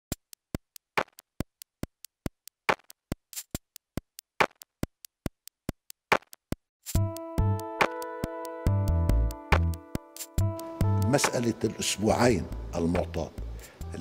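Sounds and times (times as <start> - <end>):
sharp clock-like ticking: 0.1 - 6.6.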